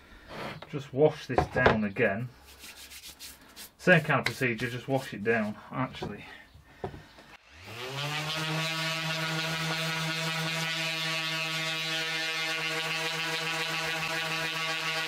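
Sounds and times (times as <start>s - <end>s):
orbital sander on plastic: 7.3s - 15.0s.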